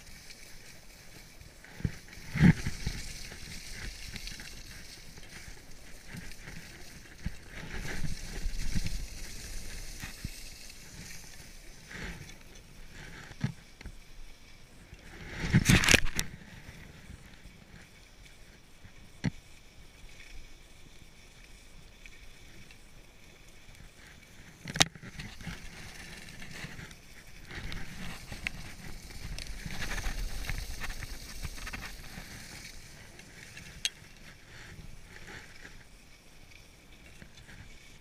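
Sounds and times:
wind rumble on microphone: 0.0 - 13.9, 23.8 - 36.2
skis scraping over packed snow: 0.0 - 38.0.

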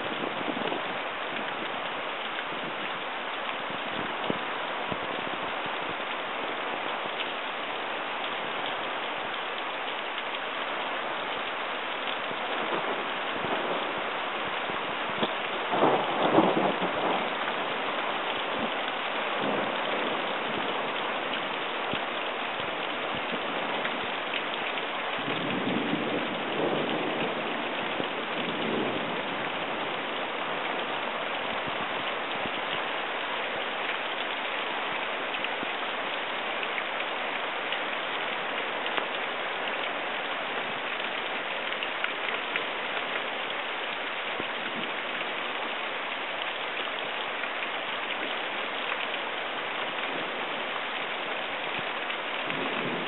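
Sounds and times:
steady rain: 0.0 - 53.0
low rumble of thunder: 12.3 - 21.1, 25.1 - 32.8, 51.7 - 53.0.

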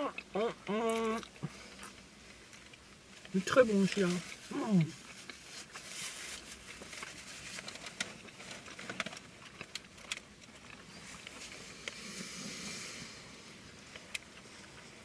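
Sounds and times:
people chewing: 0.0 - 15.0
faint hiss: 11.4 - 15.0.

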